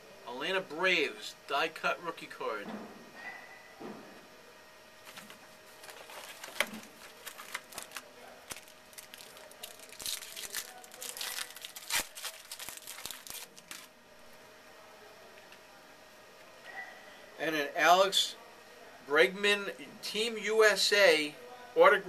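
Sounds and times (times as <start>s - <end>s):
foil wrapper tearing and crinkling: 5.1s - 13.9s.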